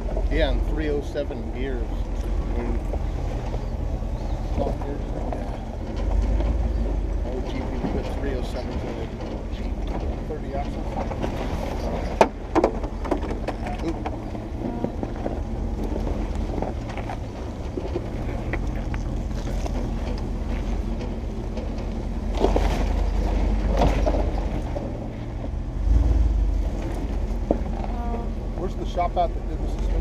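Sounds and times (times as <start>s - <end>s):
off-road vehicle engine running: 0.0s - 30.0s
scraping and crunching: 0.0s - 30.0s
sharp knocks: 11.0s - 15.0s.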